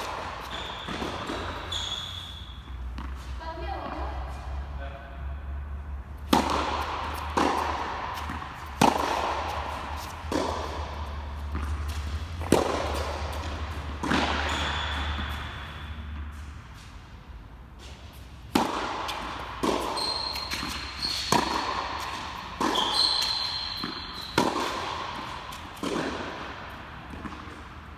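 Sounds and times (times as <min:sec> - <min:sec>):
tennis ball struck by rackets: 0:00.0 - 0:04.0, 0:06.1 - 0:16.5, 0:17.8 - 0:27.9
tennis ball bouncing on hard court: 0:00.0 - 0:04.4, 0:06.0 - 0:16.8, 0:17.7 - 0:27.9
shoe squeaks on court: 0:00.1 - 0:03.1, 0:14.2 - 0:16.2, 0:19.7 - 0:21.8, 0:22.6 - 0:24.8.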